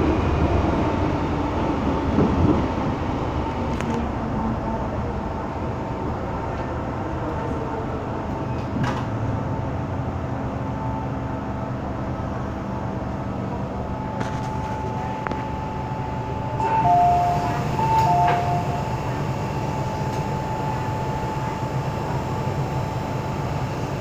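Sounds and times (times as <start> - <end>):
train cabin rumble: 0.0 - 24.0
two-tone electronic chime: 16.6 - 18.9
faint high steady tone: 16.6 - 21.4.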